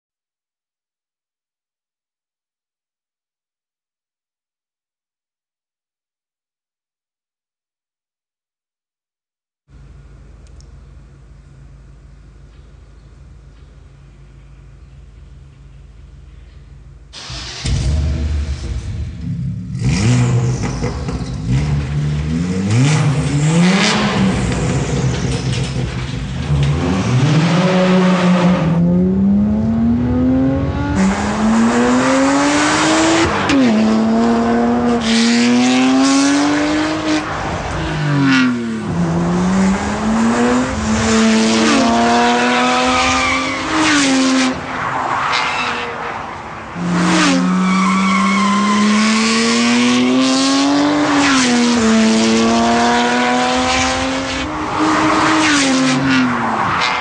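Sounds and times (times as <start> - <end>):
car engine accelerating hard: 17.2 - 45.8, 46.7 - 57.0.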